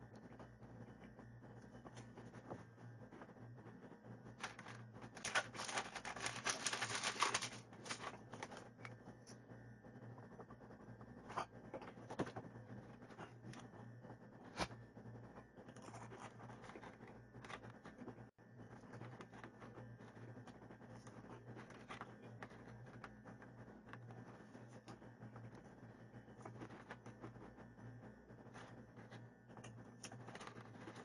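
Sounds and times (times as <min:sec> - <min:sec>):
plastic packaging crinkling: 0:04.4 - 0:08.6.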